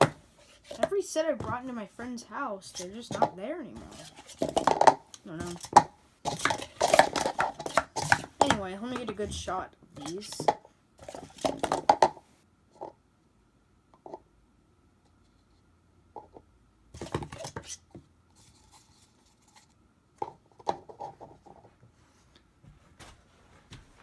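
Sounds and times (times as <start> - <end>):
plastic cups clacking: 2.6 - 12.2, 17.0 - 17.8, 20.2 - 21.7.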